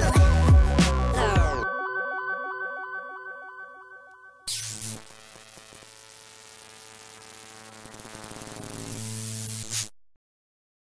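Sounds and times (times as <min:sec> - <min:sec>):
electronic buzzing hum: 0:04.5 - 0:09.9
static hiss: 0:04.5 - 0:09.9.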